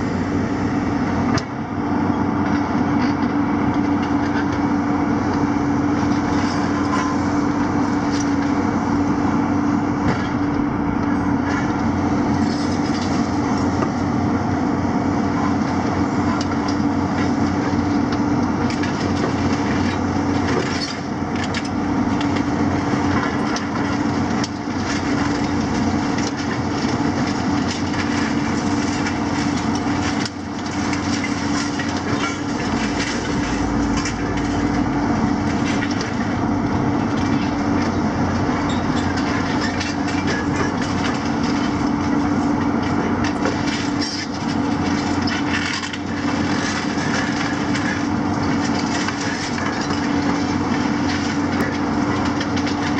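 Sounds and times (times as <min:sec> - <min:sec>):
excavator diesel engines: 0:00.0 - 0:52.9
concrete crunching and cracking: 0:15.6 - 0:52.9.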